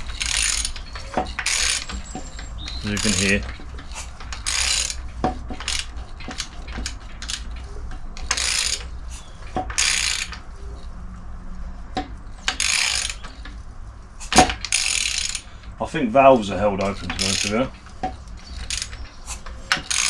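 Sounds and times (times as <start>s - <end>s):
socket ratchet clicking: 0.0s - 9.0s, 9.6s - 10.5s, 12.0s - 13.5s, 14.2s - 15.8s, 16.9s - 20.0s.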